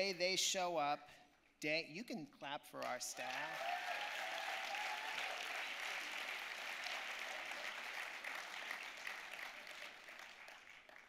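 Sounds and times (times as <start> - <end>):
audience applauding: 2.8 - 11.0.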